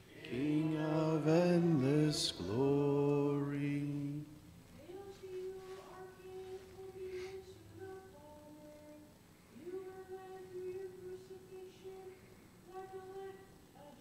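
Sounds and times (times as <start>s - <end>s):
person singing chant-like notes: 0.0s - 8.9s.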